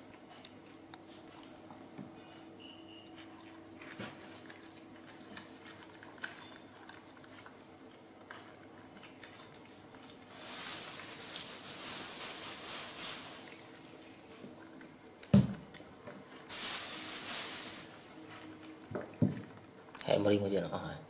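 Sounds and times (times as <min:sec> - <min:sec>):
monkeys chewing wet smacks: 0:03.2 - 0:10.3
rustling hiss: 0:16.5 - 0:18.2.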